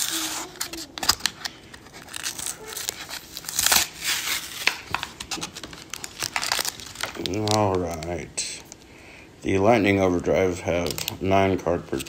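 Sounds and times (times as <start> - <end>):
foil wrapper crinkling: 0.0 - 8.9.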